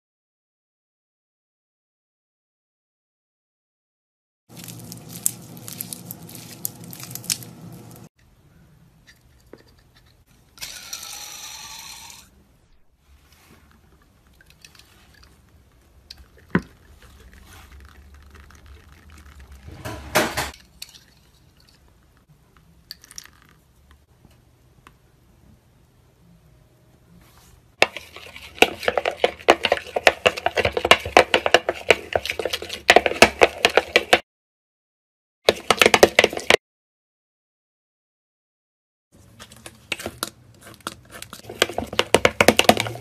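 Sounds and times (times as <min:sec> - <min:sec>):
spoon stirring slime in bowl: 0:04.5 - 0:07.5, 0:13.3 - 0:19.8, 0:27.8 - 0:34.2, 0:35.5 - 0:36.6, 0:39.2 - 0:43.0.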